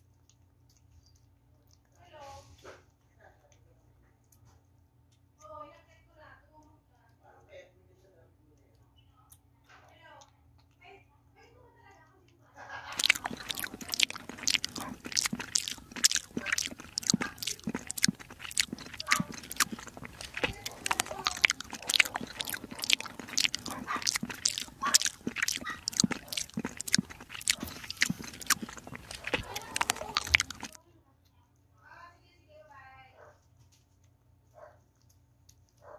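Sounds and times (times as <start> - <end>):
kitten chewing wet food: 0.0 - 5.4, 12.0 - 30.8, 34.8 - 35.9.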